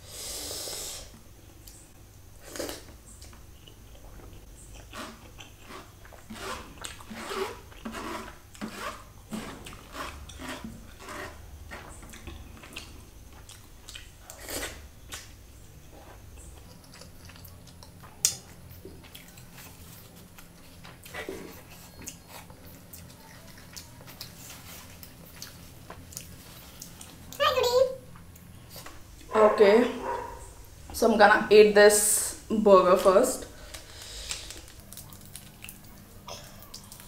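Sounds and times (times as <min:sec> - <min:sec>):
close chewing and mouth sounds: 0:02.4 - 0:08.7, 0:09.6 - 0:15.3, 0:16.0 - 0:27.6, 0:33.8 - 0:37.0.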